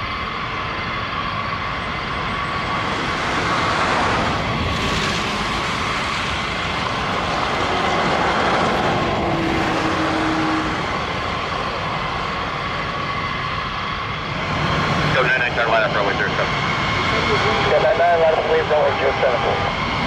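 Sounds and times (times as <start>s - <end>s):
jet engines rushing with whine: 0.0s - 20.0s.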